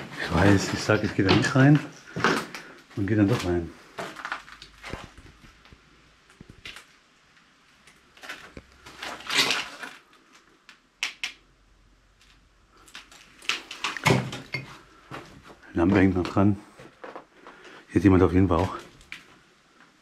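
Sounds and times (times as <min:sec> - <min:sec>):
footsteps crunching over debris: 0:00.0 - 0:06.9, 0:12.9 - 0:17.6.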